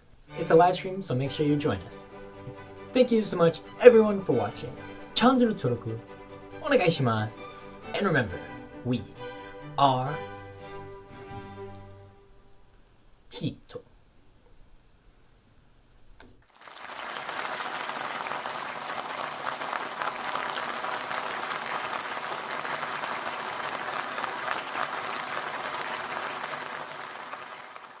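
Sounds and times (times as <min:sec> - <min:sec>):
audience applause: 0:16.5 - 0:28.0.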